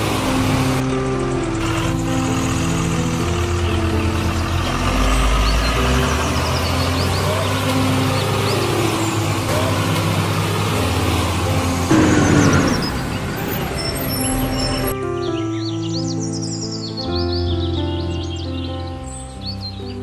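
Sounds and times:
truck engine running: 0:00.0 - 0:15.0
birds chirping: 0:00.0 - 0:20.0.

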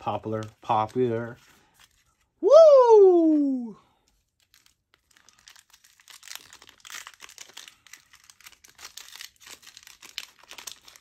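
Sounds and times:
foil wrapper crinkling: 0:04.1 - 0:11.0.

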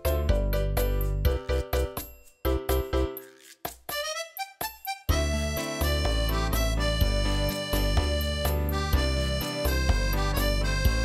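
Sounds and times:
sliding melody notes: 0:03.1 - 0:11.0.

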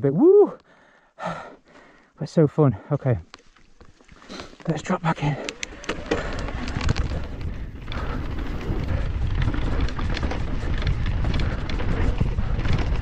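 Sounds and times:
tyres rumbling over dirt trail: 0:02.8 - 0:13.0
bike rattles and clicks: 0:03.3 - 0:13.0
wind buffeting microphone: 0:05.4 - 0:13.0.

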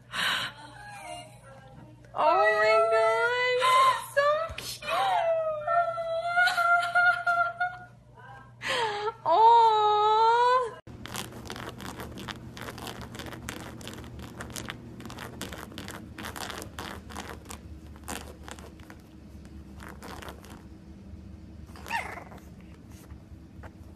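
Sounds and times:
paws scratching fabric cushion: 0:10.9 - 0:20.8, 0:21.7 - 0:23.9.

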